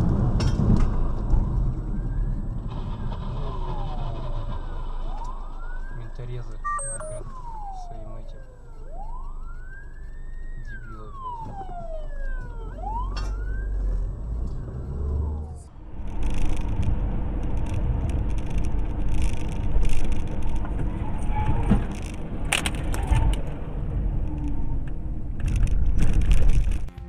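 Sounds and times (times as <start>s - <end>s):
road and engine noise in car: 0.0s - 27.0s
police siren wailing: 1.5s - 16.4s.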